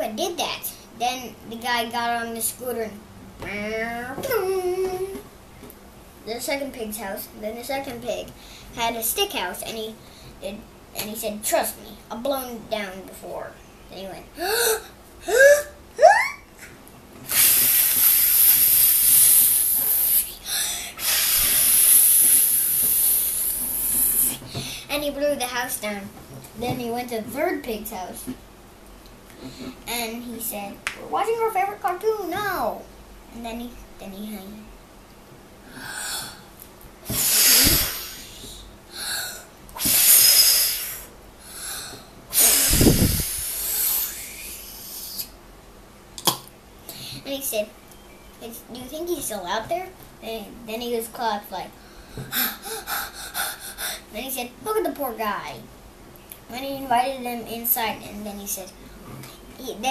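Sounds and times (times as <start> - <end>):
child blowing hard: 14.4 - 16.3, 17.3 - 24.3, 37.1 - 45.3, 52.3 - 54.1
wind rumble on microphone: 42.7 - 43.3.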